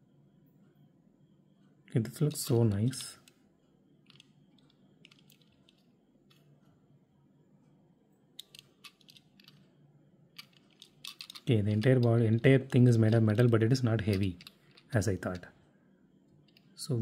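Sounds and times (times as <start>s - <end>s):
fingers handling metal toy car: 10.4s - 12.2s.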